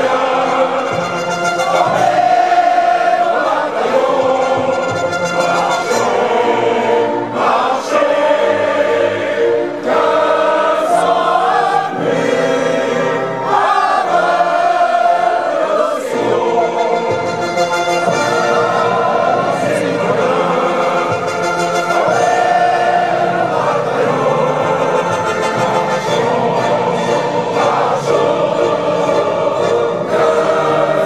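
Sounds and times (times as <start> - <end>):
choir singing long held notes: 0.0 - 31.0.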